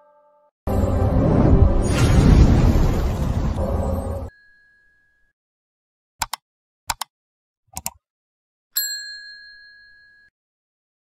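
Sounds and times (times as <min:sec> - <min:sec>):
quick double clicks: 0:06.2 - 0:07.1
small bell ringing: 0:08.8 - 0:10.4.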